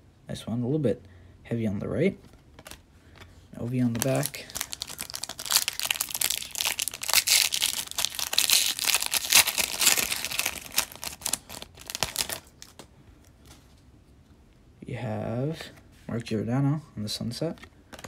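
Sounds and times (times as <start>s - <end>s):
foil wrapper tearing and crinkling: 3.9s - 12.8s.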